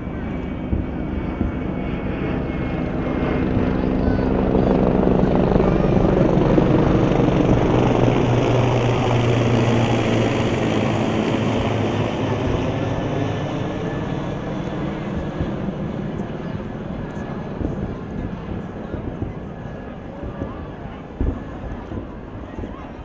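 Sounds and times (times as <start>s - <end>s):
aircraft engine drone: 0.0s - 23.0s.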